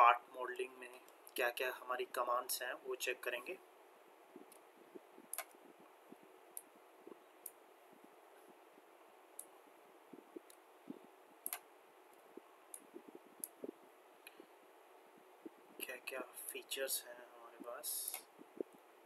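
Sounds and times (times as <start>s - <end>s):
steady hiss: 0.0s - 19.0s
computer mouse clicks: 5.3s - 5.6s, 11.4s - 14.4s.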